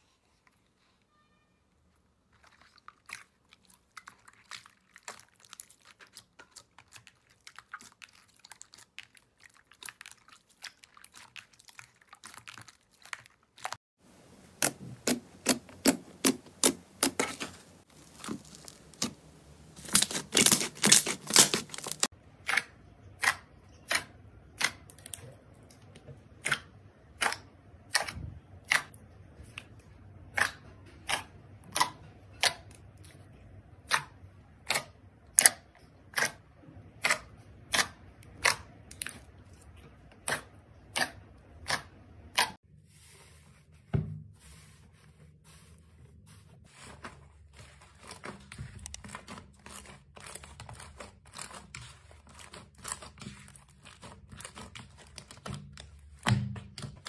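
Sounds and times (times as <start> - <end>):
slime popping air pockets: 14.3 - 22.1.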